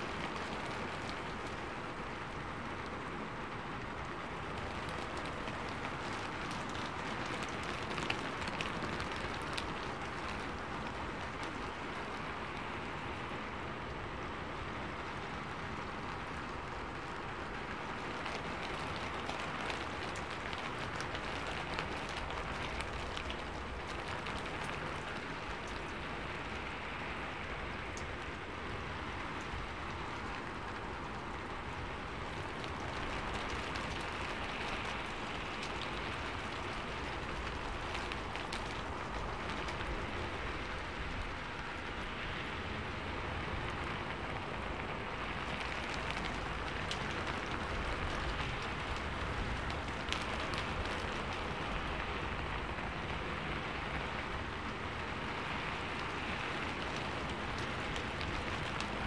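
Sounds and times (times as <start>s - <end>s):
raindrop ticks: 0.0s - 59.0s
steady rain falling: 0.0s - 59.0s.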